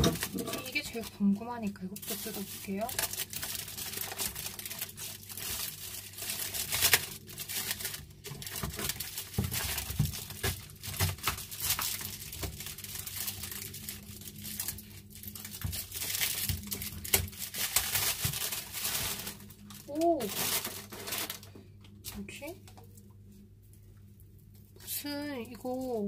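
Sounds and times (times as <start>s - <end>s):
plastic wrapping crinkling and tearing: 0.0s - 23.1s, 24.5s - 26.0s
scissors cutting plastic: 2.0s - 13.7s.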